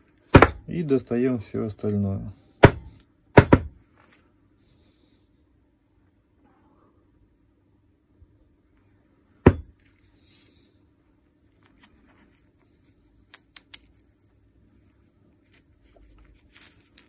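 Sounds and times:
loud knock: 2.6s - 3.8s, 9.4s - 9.7s.

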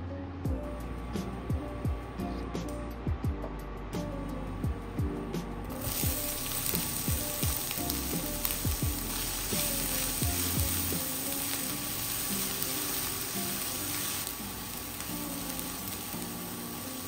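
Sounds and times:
onion sizzling in hot oil: 5.8s - 17.0s.

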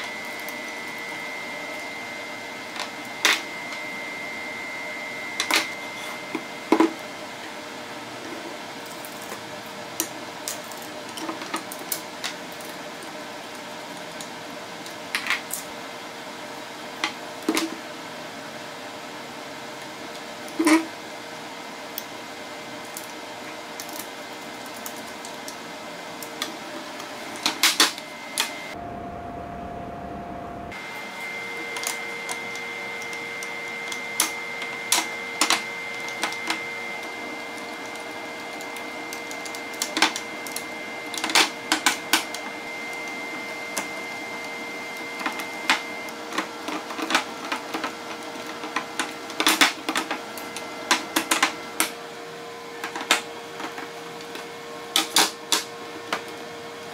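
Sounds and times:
faint hum: 27.4s - 39.6s.

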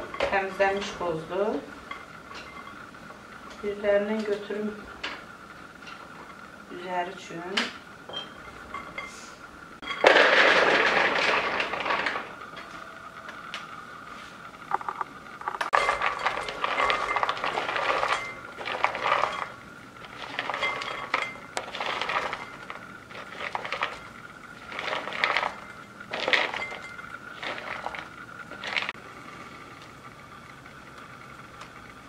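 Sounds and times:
walnuts clinking into glass bowl: 15.7s - 28.9s.

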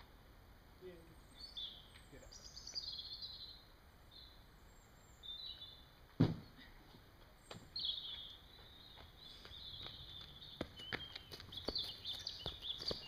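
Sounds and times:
birds singing: 0.8s - 13.0s
heavy thud of landing: 6.2s - 6.6s.

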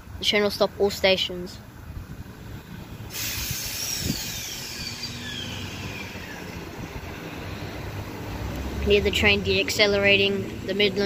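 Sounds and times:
hiss of air: 3.0s - 7.2s
electric train motor whine: 3.2s - 6.9s.

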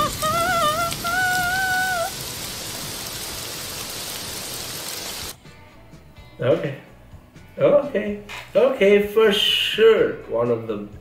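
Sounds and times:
woman singing held note: 0.0s - 2.1s
steady hiss: 0.0s - 5.4s.

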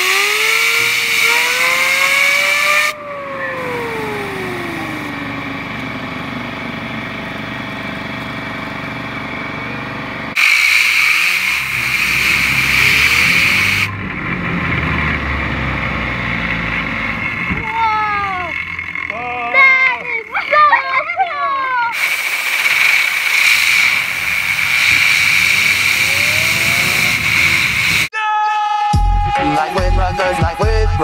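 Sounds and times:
compressed air hissing: 0.0s - 3.0s, 10.4s - 13.9s, 21.9s - 28.1s
fidget spinner whine: 0.0s - 28.1s.

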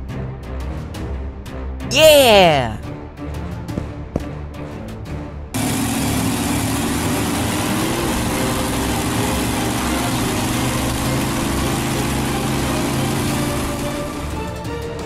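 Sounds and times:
small engine droning: 5.6s - 14.7s.

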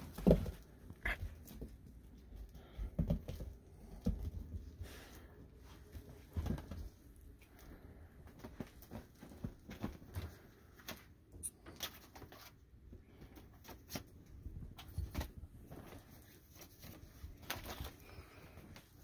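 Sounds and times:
rustling bed covers: 4.6s - 11.3s, 13.8s - 19.0s.

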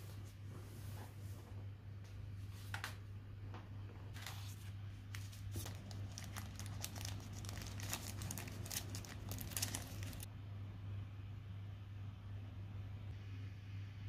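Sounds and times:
thin wrapper crinkling: 4.2s - 10.3s.

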